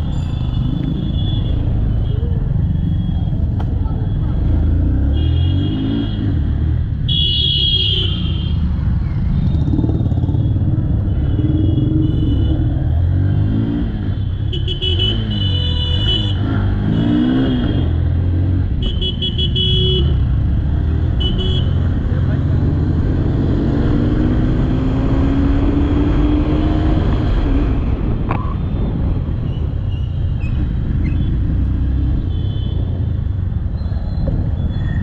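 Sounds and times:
low rumble of road and wind: 0.0s - 35.0s
vehicle horns honking: 5.0s - 6.4s, 7.1s - 8.6s, 11.0s - 12.7s, 14.2s - 18.0s, 18.8s - 20.2s, 21.2s - 21.9s, 32.2s - 33.0s
motorcycle engine running: 9.2s - 12.5s.

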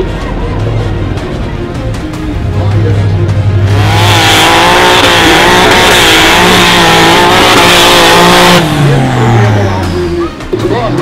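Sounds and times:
buggy engine revving hard: 3.4s - 10.3s.

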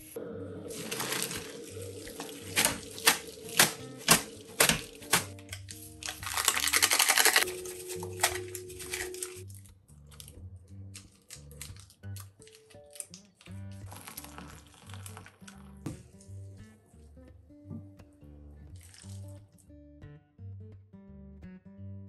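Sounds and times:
soft background music: 0.0s - 19.6s
water splashing into sink: 0.7s - 7.4s
foil sachets rustling and crinkling: 0.7s - 10.3s, 11.0s - 13.2s, 13.8s - 15.5s.

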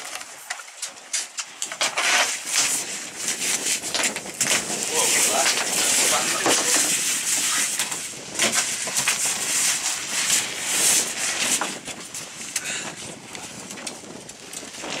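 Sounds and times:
wind and sea hiss: 2.0s - 15.0s.

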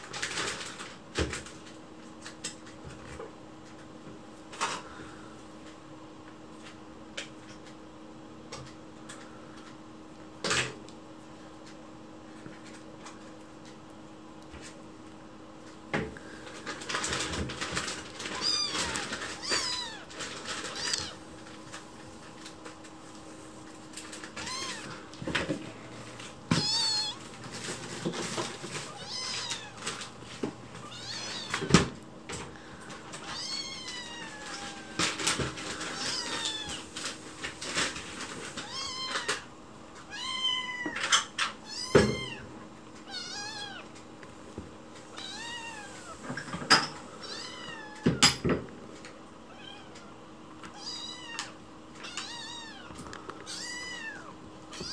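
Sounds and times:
kitten meowing: 18.3s - 20.1s, 20.7s - 21.2s, 24.4s - 25.0s, 26.5s - 27.2s, 28.9s - 29.8s, 35.9s - 36.8s, 43.1s - 43.8s.

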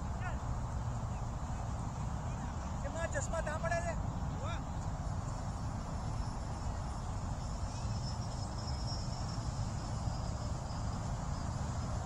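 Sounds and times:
continuous low rumble: 0.0s - 12.0s
insects trilling: 5.3s - 12.0s.

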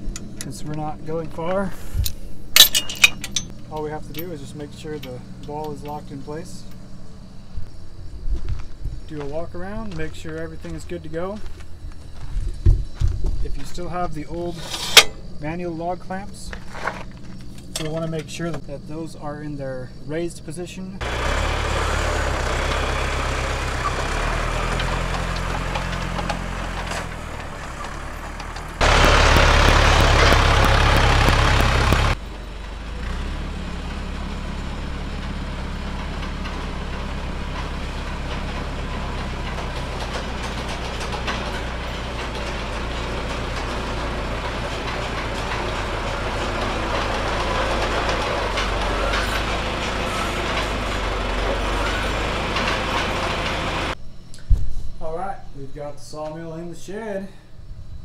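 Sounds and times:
tractor engine running: 0.0s - 7.6s, 21.0s - 54.0s.

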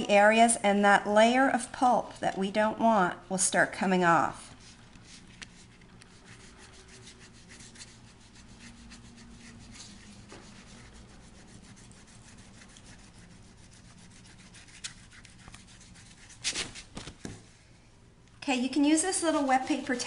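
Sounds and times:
fingertips rubbing wet paper: 4.6s - 17.3s.

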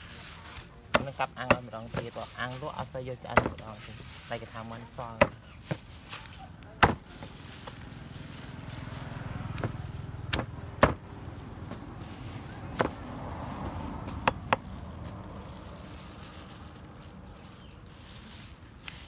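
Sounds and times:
knife chopping on cutting board: 3.3s - 3.6s, 6.8s - 7.1s, 9.6s - 11.0s, 12.8s - 13.0s.

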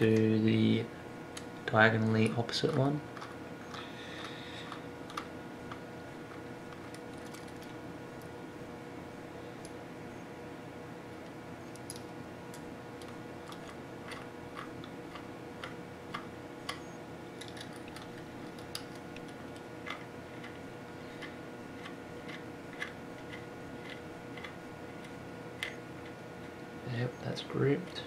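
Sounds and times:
steady low hum: 0.0s - 28.0s
small metal clicks: 17.4s - 20.6s.

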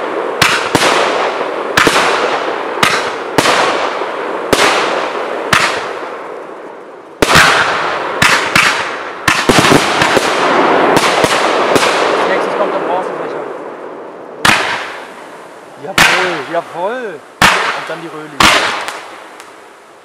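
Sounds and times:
firework shells banging: 0.0s - 6.5s, 7.2s - 12.7s, 14.4s - 19.6s
firework hiss: 14.4s - 20.0s.

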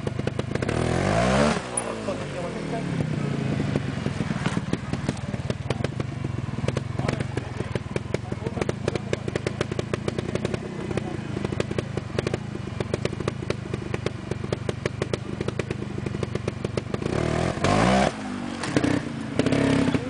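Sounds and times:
motorcycle engine idling and revving: 0.0s - 20.0s.

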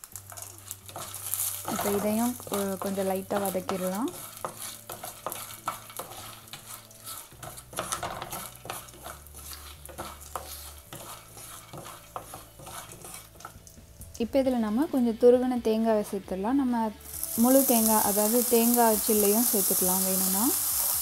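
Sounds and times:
hot oil sizzling: 0.0s - 15.0s, 17.0s - 21.0s
wooden spatula scraping a pan: 0.2s - 13.7s.

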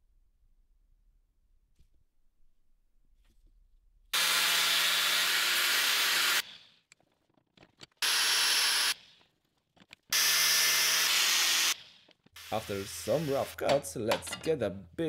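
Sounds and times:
angle grinder cutting steel: 4.2s - 6.6s, 8.0s - 9.0s, 10.1s - 11.8s.

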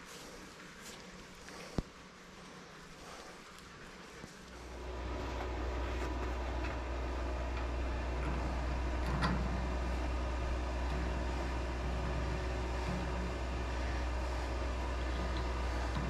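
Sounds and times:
low engine rumble: 4.4s - 16.0s.

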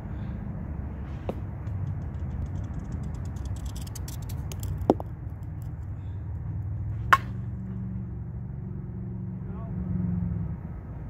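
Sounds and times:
steady low rumble: 0.0s - 9.8s
bat cracking a softball: 1.2s - 5.9s, 7.0s - 7.6s.

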